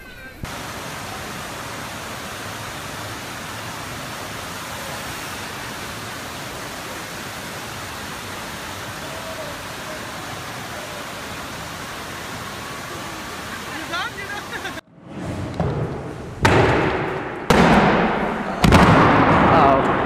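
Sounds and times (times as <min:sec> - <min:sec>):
rushing pumped water: 0:00.4 - 0:14.8.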